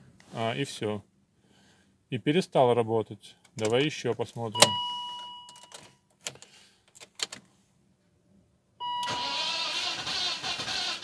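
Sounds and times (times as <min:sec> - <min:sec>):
instrument cluster chime: 0:04.6 - 0:05.8
ignition key and switch clicks: 0:04.6 - 0:07.4
starter motor cranking engine: 0:09.0 - 0:11.0.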